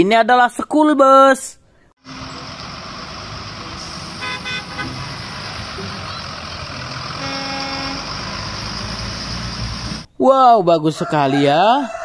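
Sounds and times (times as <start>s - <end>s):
bus engines running: 2.0s - 10.1s.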